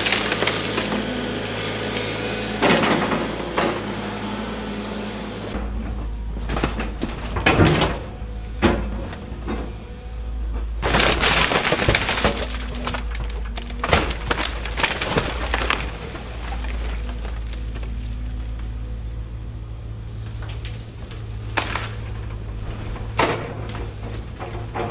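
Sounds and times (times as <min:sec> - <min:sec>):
excavator diesel engine running: 0:00.0 - 0:24.9
wooden boards splintering: 0:10.5 - 0:18.7, 0:20.2 - 0:24.9
crashes: 0:10.8 - 0:18.6
metal siding clattering: 0:20.2 - 0:24.9.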